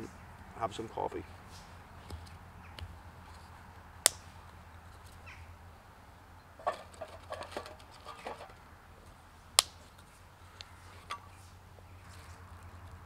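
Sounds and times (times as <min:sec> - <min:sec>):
twigs snapping: 0:04.0 - 0:04.6, 0:09.6 - 0:10.7.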